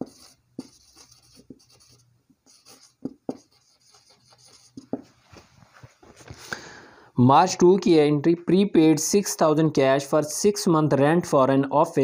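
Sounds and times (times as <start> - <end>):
marker scratching on whiteboard: 0.0 - 6.0.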